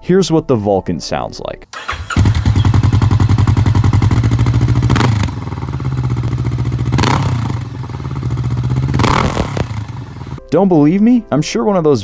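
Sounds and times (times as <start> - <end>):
motorcycle engine running: 1.8 - 10.4.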